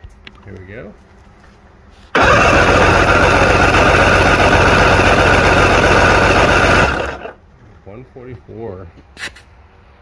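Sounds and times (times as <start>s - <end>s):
engine cranking on starter: 2.1s - 7.4s.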